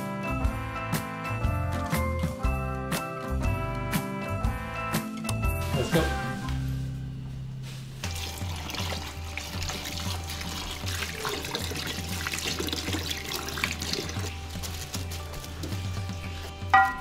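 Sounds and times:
background music: 0.0 - 17.0
tap water running into metal bowl: 8.0 - 15.8
hand stirring berries in water: 8.1 - 16.4.

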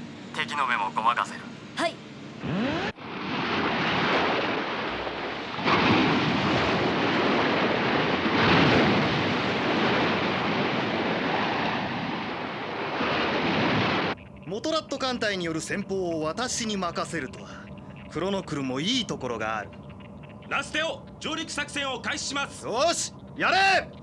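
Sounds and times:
rushing water and spray: 3.0 - 14.2.

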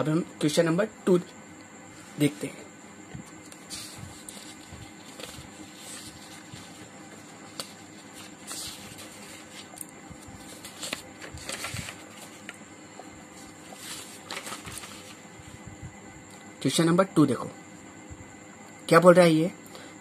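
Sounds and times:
paper page rustling: 3.3 - 12.6, 13.3 - 15.5.

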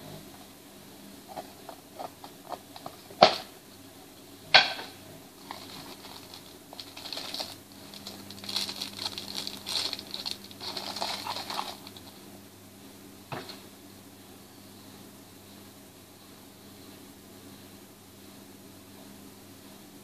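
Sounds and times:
hard objects clacking in box: 5.4 - 12.1
plastic wrap crinkling: 5.4 - 12.2.

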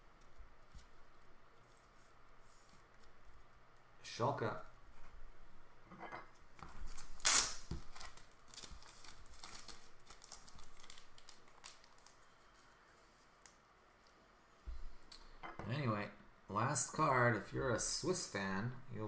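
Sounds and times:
plastic rustling and scraping: 6.6 - 13.5.

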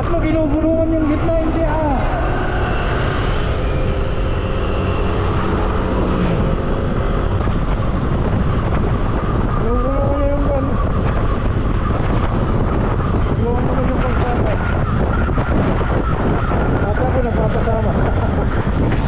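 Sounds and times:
scooter engine and tyre noise: 0.0 - 19.0
wind buffeting microphone: 0.0 - 19.0.

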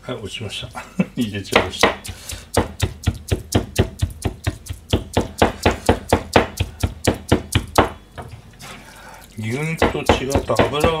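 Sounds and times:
cleaver chopping on cutting board: 1.5 - 8.0, 9.7 - 11.0.

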